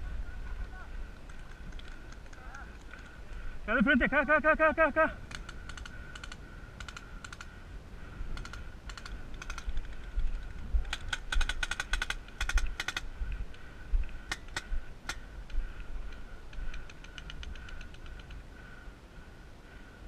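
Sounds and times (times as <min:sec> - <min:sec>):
paintball markers firing: 0:08.4 - 0:13.1.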